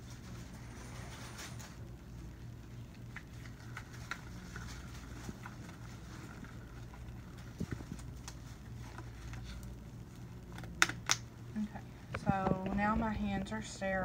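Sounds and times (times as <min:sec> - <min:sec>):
gloves rustling and clicking: 0:02.6 - 0:11.4.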